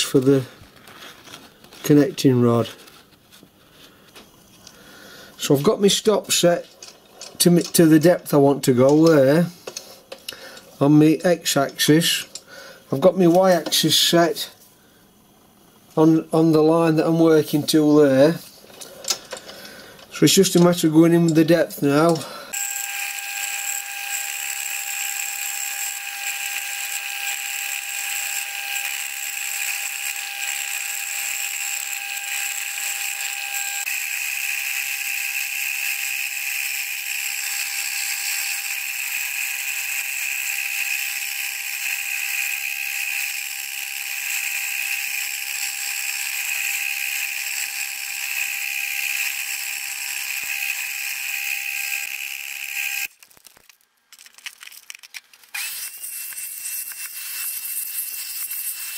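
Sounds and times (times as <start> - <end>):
milling machine cutting metal: 22.1 - 53.1.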